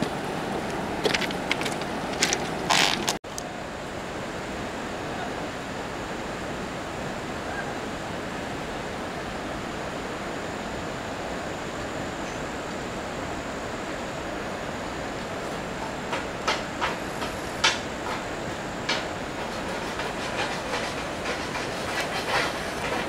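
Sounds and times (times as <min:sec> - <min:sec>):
footsteps crunching on ballast: 0:01.0 - 0:03.2.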